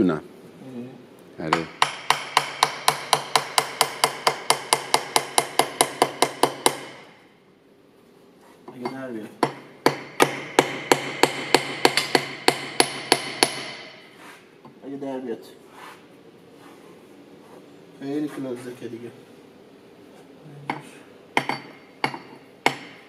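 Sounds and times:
hammer tapping metal tool: 0:01.5 - 0:07.0, 0:08.7 - 0:14.0, 0:20.7 - 0:23.0.

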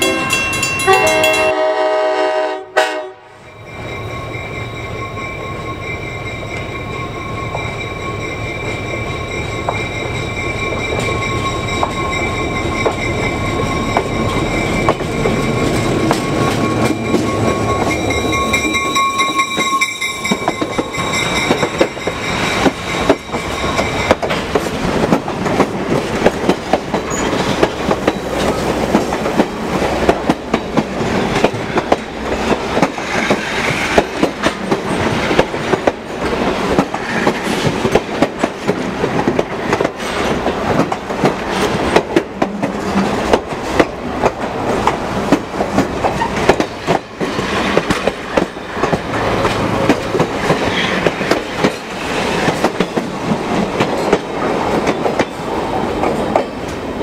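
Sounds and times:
train horn: 0:00.0 - 0:03.4
diesel locomotive engine: 0:00.0 - 0:57.0
wheels clicking over rail joints: 0:09.6 - 0:56.9.

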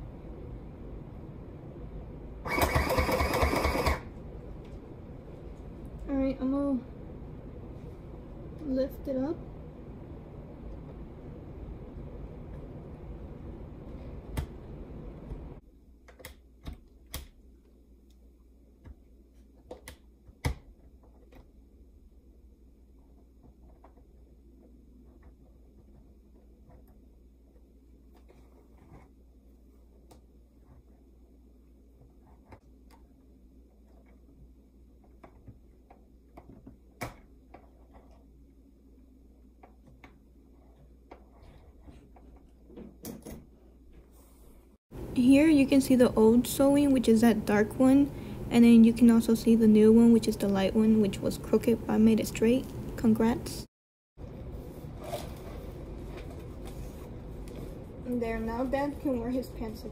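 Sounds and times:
sewing machine running: 0:02.4 - 0:04.1.

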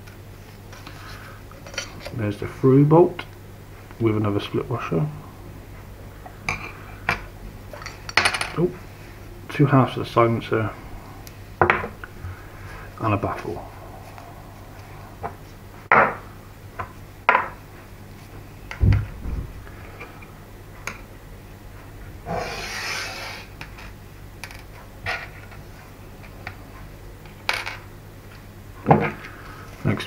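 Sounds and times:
low thump: 0:18.8 - 0:19.7
scraping rub: 0:22.3 - 0:23.6.

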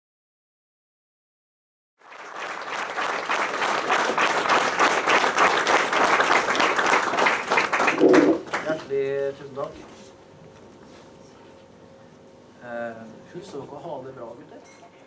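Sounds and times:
audience applauding: 0:02.0 - 0:08.8.

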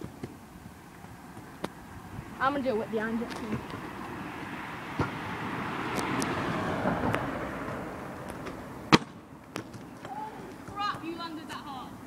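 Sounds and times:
scooter wheels rumbling over concrete: 0:02.4 - 0:04.3, 0:05.9 - 0:11.6.

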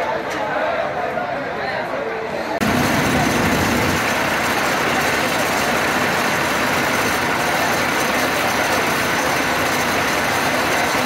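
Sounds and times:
fire engine running: 0:02.6 - 0:11.0.

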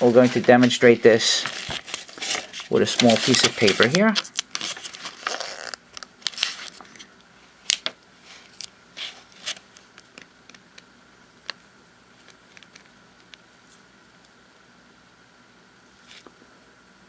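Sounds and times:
paper rustling and crinkling: 0:00.0 - 0:07.1, 0:07.7 - 0:10.3.

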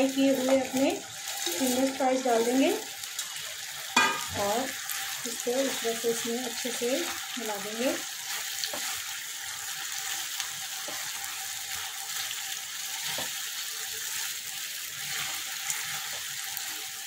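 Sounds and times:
sauce sizzling in frying pan: 0:00.0 - 0:17.0
spatula knocking in pan: 0:04.0 - 0:04.4.

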